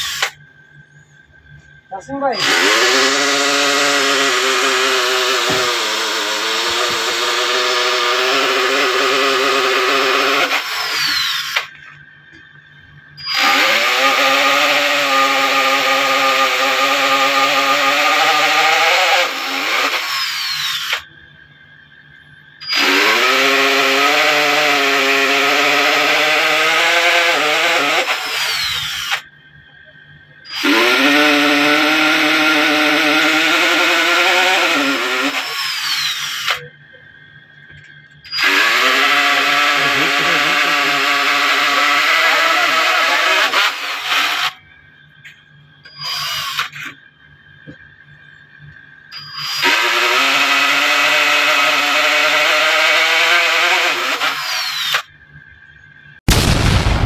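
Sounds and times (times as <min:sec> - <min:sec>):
electric drill boring into metal: 0:00.0 - 0:00.4, 0:02.3 - 0:11.9, 0:13.2 - 0:21.1, 0:22.6 - 0:29.3, 0:30.5 - 0:36.7, 0:38.2 - 0:44.6, 0:45.9 - 0:47.0, 0:49.1 - 0:55.1.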